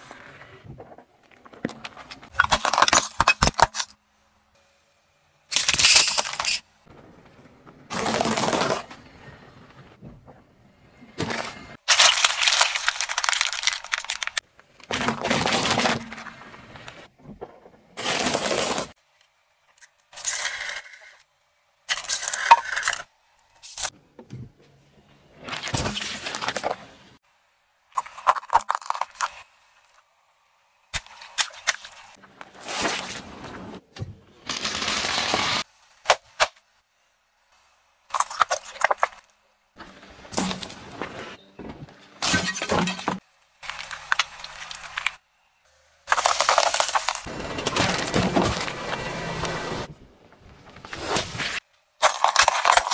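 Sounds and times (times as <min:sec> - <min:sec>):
tyre crushing objects: 0:46.1 - 0:52.9.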